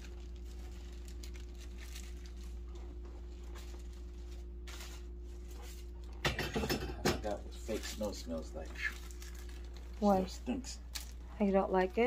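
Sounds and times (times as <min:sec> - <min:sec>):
rustling of artificial tree packing: 0:00.0 - 0:06.2, 0:07.3 - 0:12.0
steady low hum: 0:00.0 - 0:12.0.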